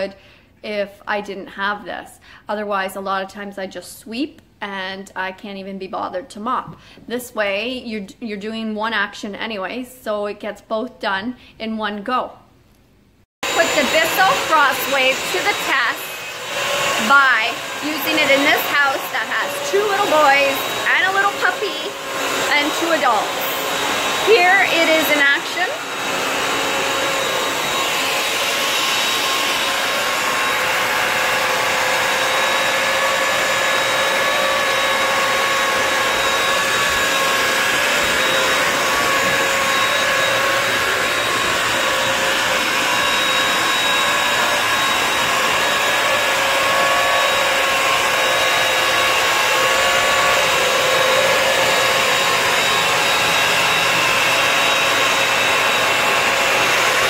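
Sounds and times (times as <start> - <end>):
wet-dry vacuum motor humming: 13.4 - 57.0.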